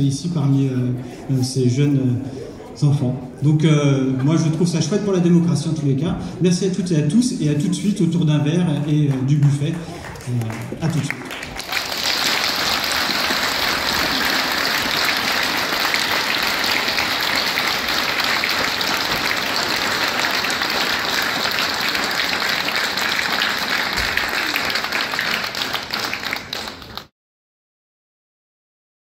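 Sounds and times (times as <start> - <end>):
audience applauding: 8.9 - 27.1.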